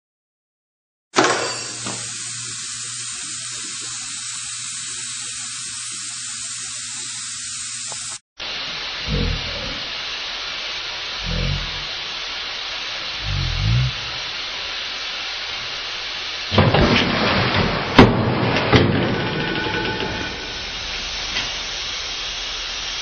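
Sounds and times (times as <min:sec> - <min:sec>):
steady hiss: 0:01.2 - 0:23.0
dull low thumps: 0:13.2 - 0:14.1.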